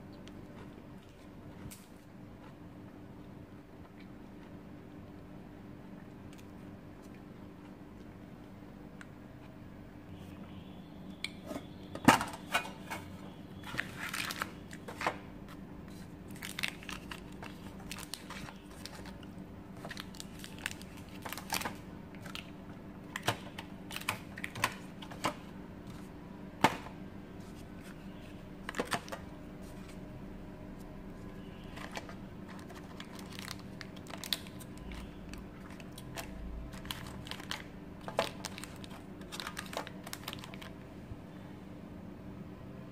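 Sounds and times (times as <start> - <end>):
plastic wrappers crinkling: 13.6 - 15.2, 15.9 - 26.9, 28.6 - 30.0, 31.2 - 40.8.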